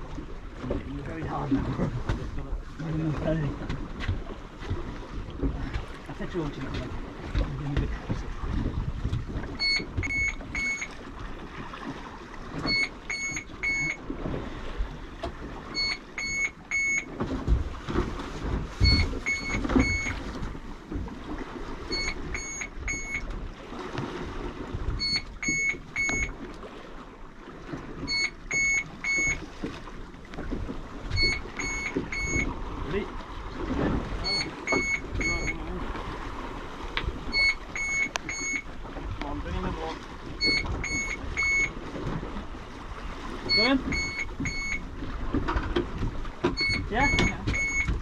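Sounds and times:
water noise: 0.0 - 48.0
wind: 0.0 - 48.0
electronic alarm beeping: 9.6 - 11.0, 12.6 - 14.0, 15.8 - 17.1, 18.8 - 20.2, 21.9 - 23.2, 25.0 - 26.3, 28.1 - 29.4, 31.2 - 32.5, 34.2 - 35.7, 37.3 - 38.7, 40.4 - 41.8, 43.5 - 44.8, 46.5 - 48.0.

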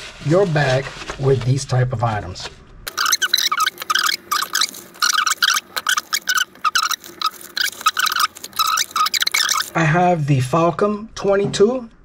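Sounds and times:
nylon bag rustling: 2.9 - 9.8.

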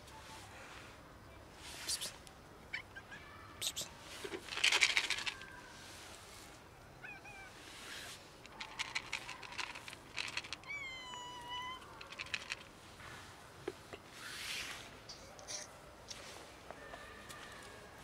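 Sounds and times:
cats meowing: 7.0 - 7.6, 10.5 - 12.3
clicking and rustling: 8.4 - 10.6, 11.9 - 12.7.

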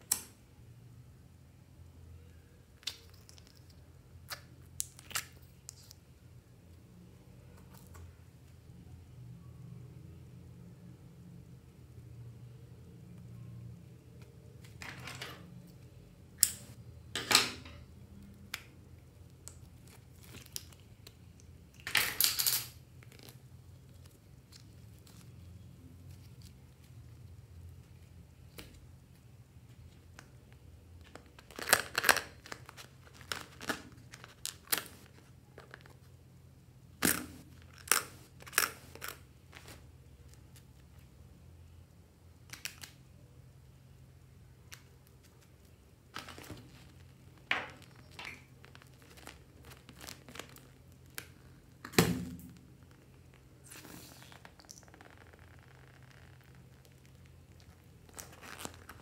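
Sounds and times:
faint steady hum: 0.0 - 59.0
sticky slime crackles: 18.4 - 21.7, 44.7 - 51.8, 52.6 - 59.0.

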